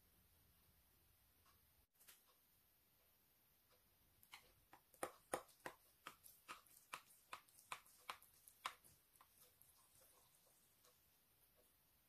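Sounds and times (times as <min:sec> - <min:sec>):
knife cutting rice cake: 0:04.3 - 0:10.4.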